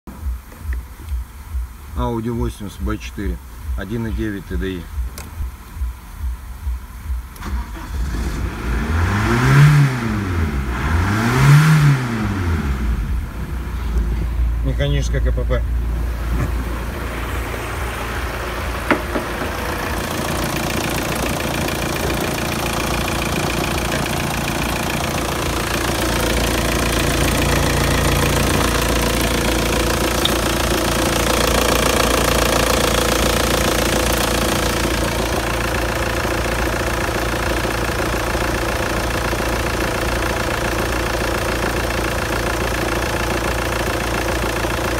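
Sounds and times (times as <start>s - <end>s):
diesel engine idling: 10.1s - 44.9s.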